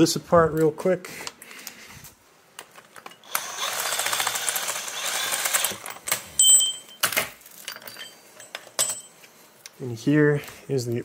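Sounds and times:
sharp metal clinks: 6.4 - 9.2.

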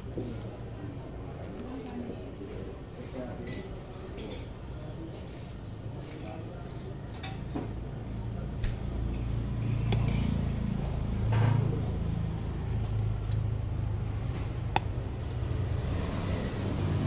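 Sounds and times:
cutlery clinking against a plate: 3.4 - 4.6
low engine rumble: 5.7 - 17.0.

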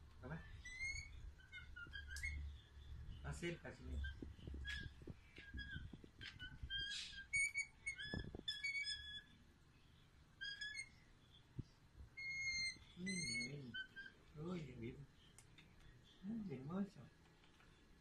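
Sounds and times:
bird high-pitched begging calls: 0.6 - 9.3, 12.2 - 14.2.

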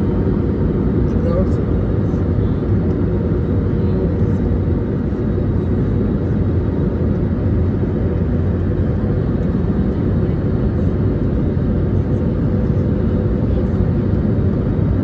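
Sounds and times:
airliner cabin low rumble: 0.0 - 15.0.

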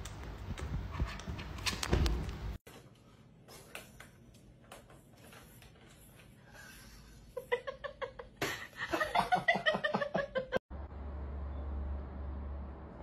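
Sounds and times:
person laughing hard: 7.4 - 10.6.

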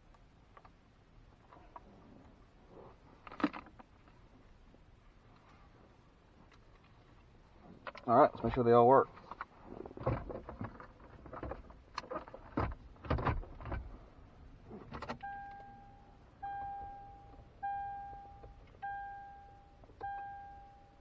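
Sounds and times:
plastic dash panel clicks: 10.0 - 13.8
dashboard warning chime dinging: 15.1 - 21.0.

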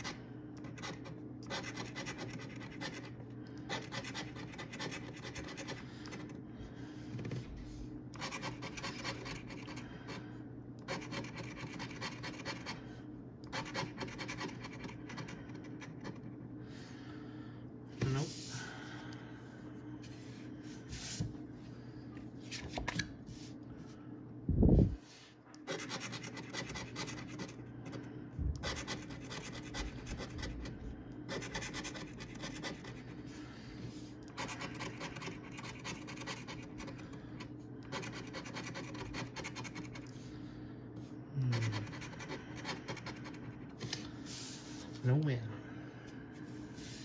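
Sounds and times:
coin scratching lottery ticket: 0.0 - 6.3, 8.2 - 9.8, 10.8 - 12.8, 13.5 - 16.2, 25.6 - 27.6, 28.6 - 30.5, 31.3 - 33.1, 34.4 - 37.0, 37.9 - 40.0.

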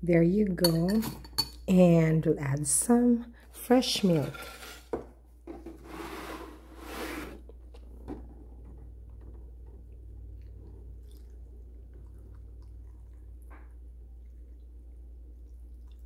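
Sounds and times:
milk pouring into a bowl: 9.1 - 16.0.

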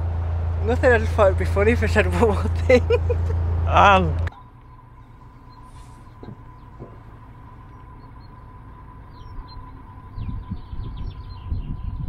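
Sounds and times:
boat engine humming: 0.0 - 12.0
uneven low rumble: 0.0 - 12.0
small birds chirping: 4.3 - 12.0.

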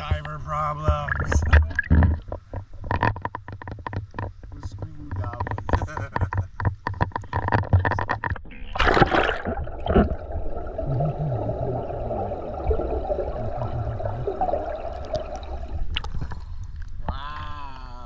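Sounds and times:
water splashing: 0.8 - 2.4, 8.4 - 17.0
muffled underwater wash: 8.6 - 17.0.

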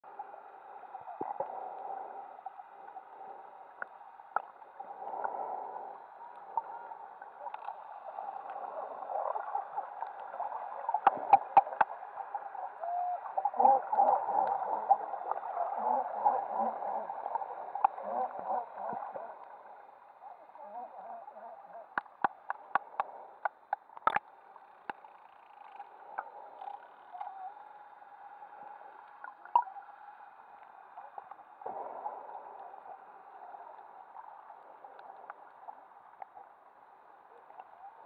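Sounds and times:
underwater bubbling and gurgling: 0.1 - 38.0.

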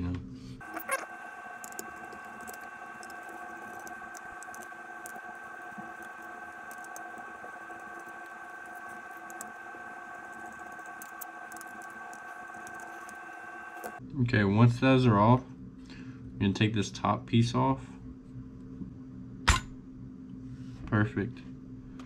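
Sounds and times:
steady hum of held tones: 0.2 - 22.0
small metal clicks and scratches: 0.6 - 14.0.

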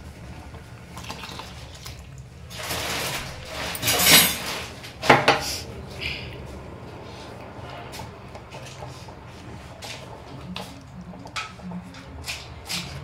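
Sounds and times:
liquid pouring into pot: 0.9 - 2.5.

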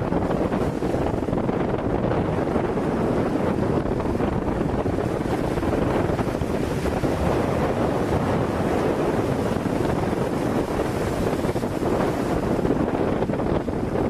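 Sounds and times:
choppy waves splashing: 0.0 - 14.0
wind buffeting microphone: 0.0 - 14.0.

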